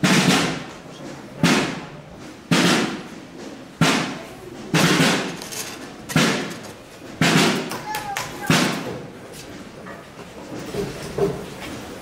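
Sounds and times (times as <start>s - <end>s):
processional drum beats: 0.0s - 9.2s.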